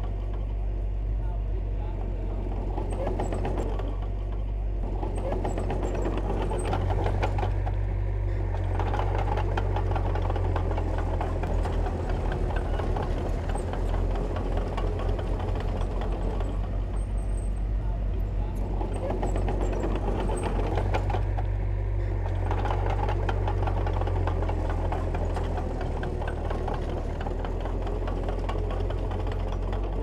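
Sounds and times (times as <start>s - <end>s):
heavy diesel engine rumbling: 0.0s - 30.0s.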